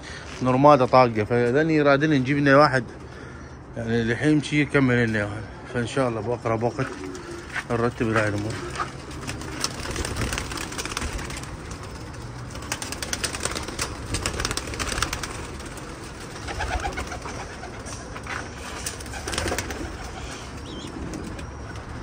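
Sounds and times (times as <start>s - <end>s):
pigeons cooing: 6.6s - 22.0s.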